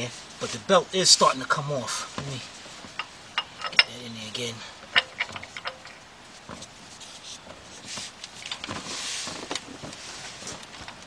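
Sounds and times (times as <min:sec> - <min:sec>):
ratchet clicking and scraping: 0:02.9 - 0:06.0.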